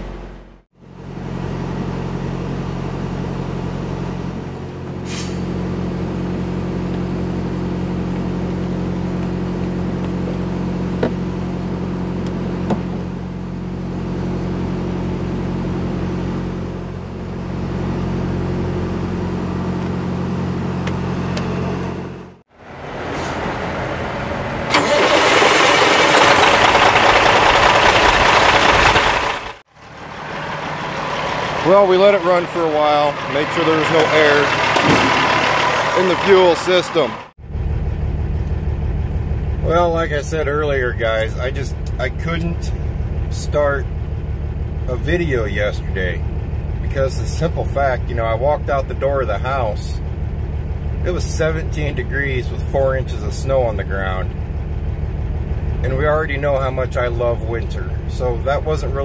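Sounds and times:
diesel truck engine idling: 23.4s - 59.0s.

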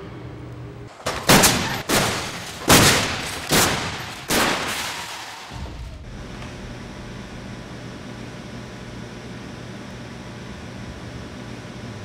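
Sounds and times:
trucks crashing into barrier: 0.9s - 6.1s.

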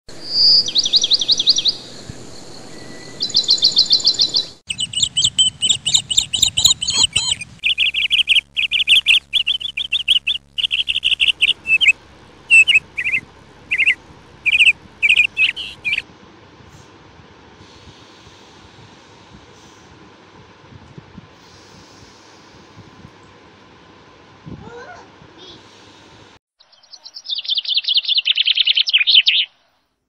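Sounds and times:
small birds chirping: 0.2s - 16.0s, 26.6s - 29.6s.

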